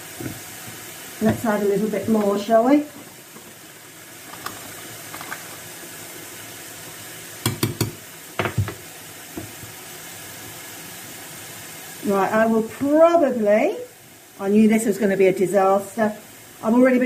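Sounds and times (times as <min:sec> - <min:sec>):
milk hissing in a pan: 0:00.0 - 0:17.0.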